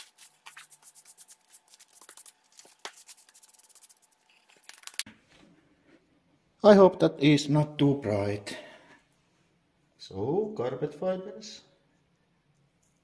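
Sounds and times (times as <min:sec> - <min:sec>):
plastic bag crinkling: 0:00.0 - 0:05.1.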